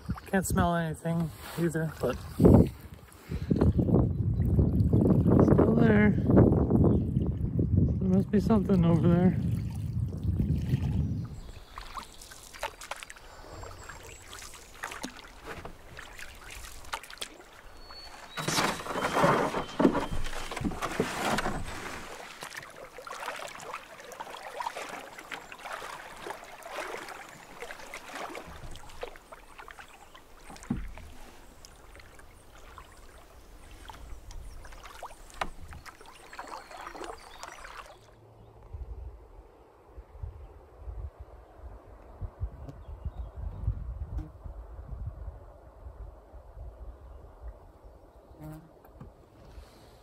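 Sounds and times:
paddle strokes splashing in water: 10.4s - 38.2s.

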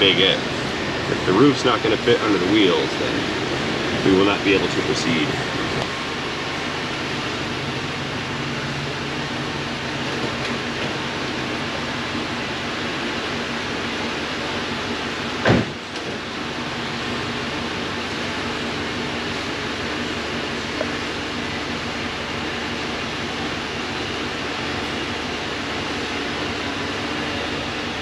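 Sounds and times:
car engine idling: 0.0s - 28.0s
car door shutting: 15.4s - 16.3s.

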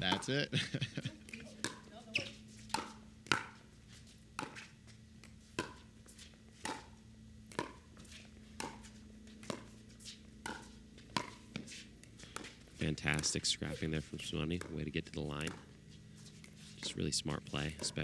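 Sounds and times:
paddles hitting plastic ball: 2.7s - 3.6s, 7.5s - 7.8s, 10.4s - 13.5s, 14.5s - 15.7s.

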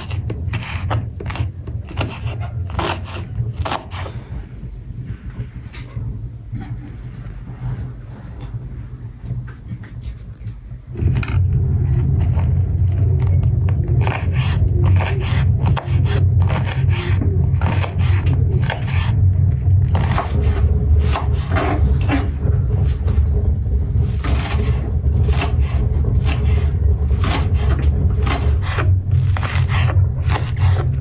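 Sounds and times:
low rumble: 0.0s - 31.0s.

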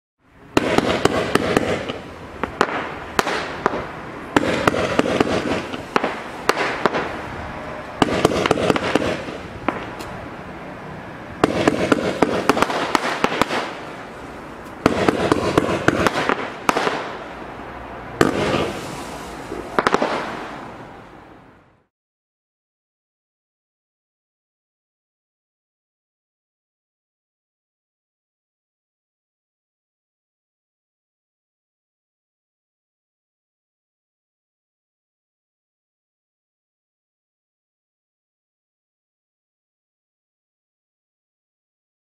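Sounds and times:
firework cracks and bangs: 0.5s - 7.4s, 8.0s - 10.2s, 11.4s - 17.4s, 18.2s - 20.8s.

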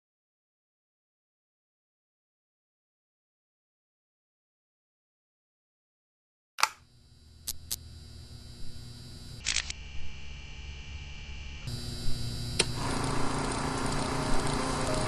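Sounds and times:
projector running with low hum: 6.7s - 15.0s
projector mechanical clicks: 12.5s - 15.0s.

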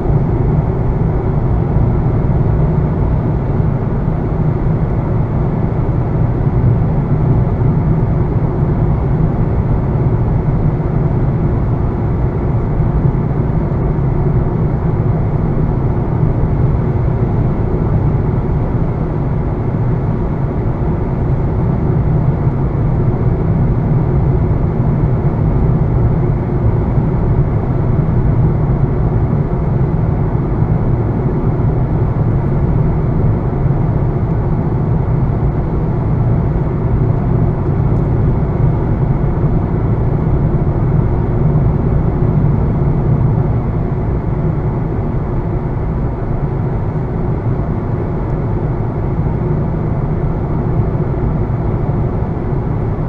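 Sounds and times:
car engine rumble: 0.0s - 53.0s.

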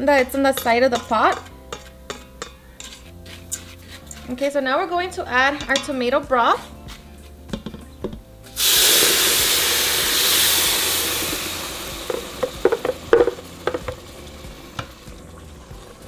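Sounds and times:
loud sizzle in hot oil: 0.1s - 4.2s, 8.5s - 16.0s
spoon knocking blender jar: 12.1s - 14.0s.

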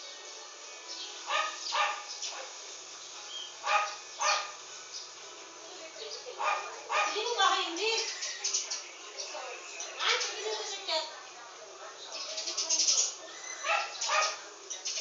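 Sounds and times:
dog barking: 1.3s - 2.6s, 3.6s - 4.6s, 6.4s - 7.2s, 13.6s - 14.5s.

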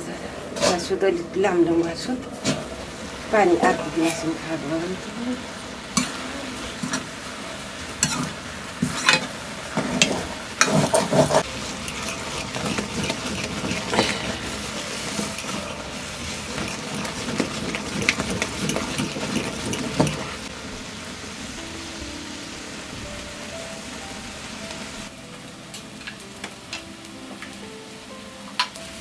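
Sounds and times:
greens sizzling: 0.0s - 29.0s
metal ladle scraping pan: 8.0s - 20.5s.

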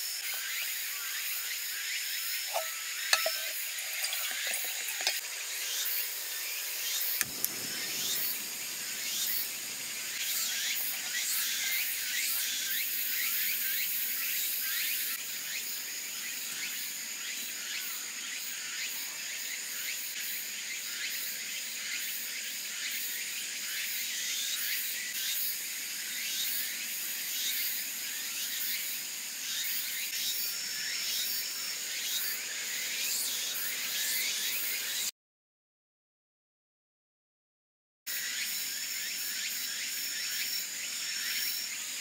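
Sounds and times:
insects trilling: 0.0s - 35.1s, 38.1s - 42.0s
even hiss: 2.5s - 14.3s.

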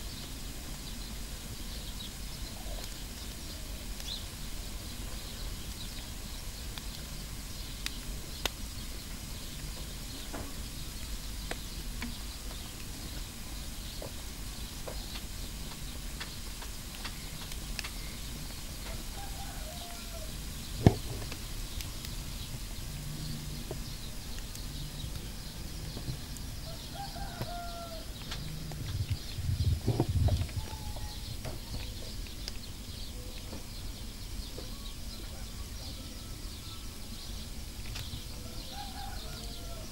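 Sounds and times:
wood fire crackling and popping: 0.0s - 35.8s, 36.9s - 39.9s
loud sharp pop from fire: 20.8s - 21.4s.

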